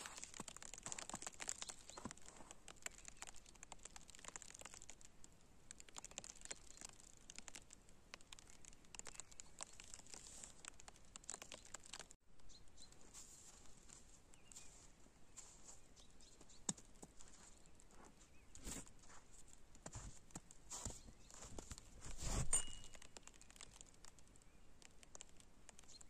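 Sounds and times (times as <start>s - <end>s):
faint crackling patter of snow: 0.0s - 26.0s.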